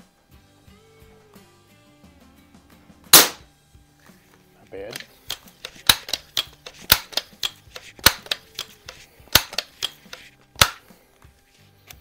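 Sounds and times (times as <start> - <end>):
air rifle pump lever clacks: 4.9 - 10.8.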